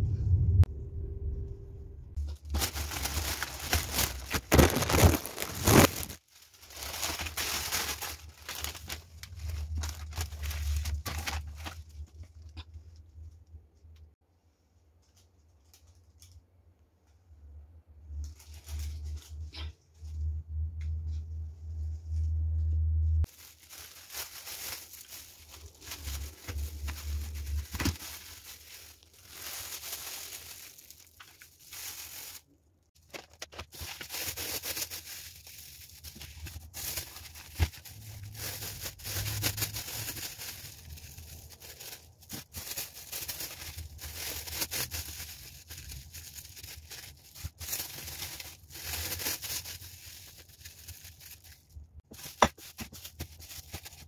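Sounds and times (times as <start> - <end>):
low hum: 0.0 - 3.6
plastic bags crinkling: 2.2 - 12.6, 23.2 - 54.0.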